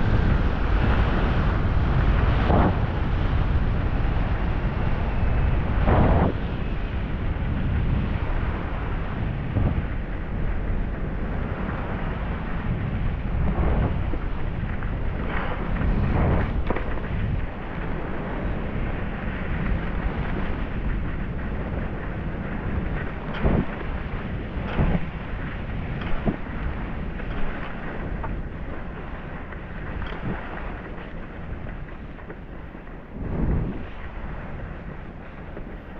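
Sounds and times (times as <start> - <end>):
wind buffeting microphone: 0.0 - 35.9
skis sliding on snow: 13.5 - 35.9.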